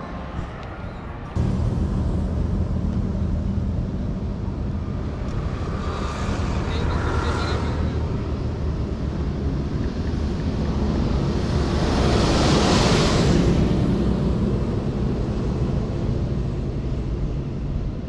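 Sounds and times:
highway traffic: 0:00.0 - 0:18.0
vehicle passing close: 0:00.1 - 0:08.5.

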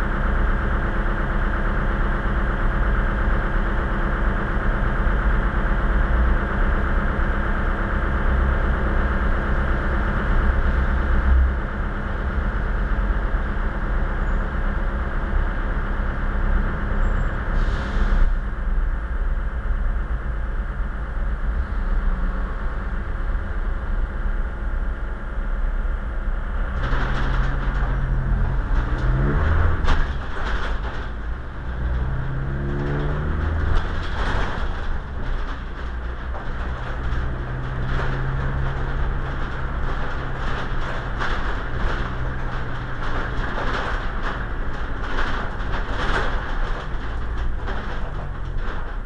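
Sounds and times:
road rumble: 0:00.0 - 0:49.0
vehicle engine accelerating: 0:26.8 - 0:46.5.

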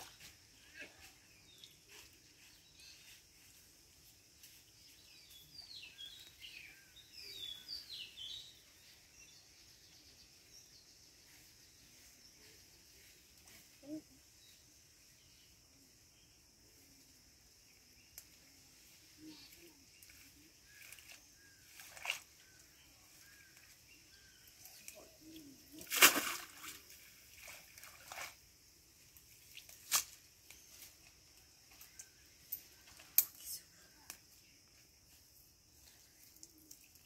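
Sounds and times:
pond water splashing and sloshing: 0:20.0 - 0:30.5, 0:35.8 - 0:37.0.

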